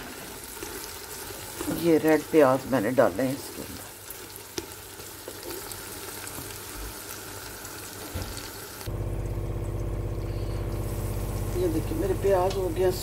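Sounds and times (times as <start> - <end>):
onions sizzling in hot oil: 0.0 - 8.9, 9.5 - 13.0
low mechanical hum: 8.4 - 13.0.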